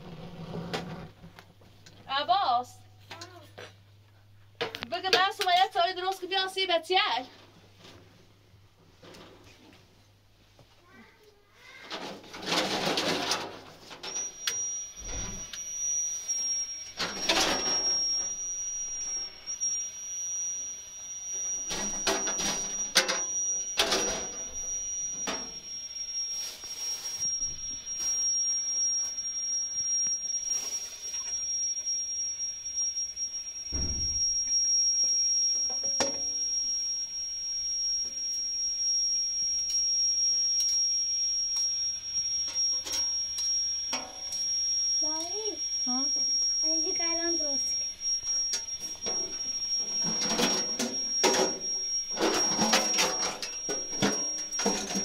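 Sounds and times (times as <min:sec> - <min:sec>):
high-pitched whistling tone: 0:13.9 - 0:55.0.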